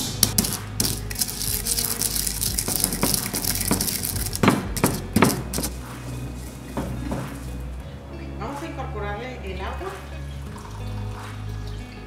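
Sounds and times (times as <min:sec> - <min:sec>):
stone pestle grinding: 0:00.0 - 0:07.8
stone knocking on stone: 0:02.5 - 0:05.8.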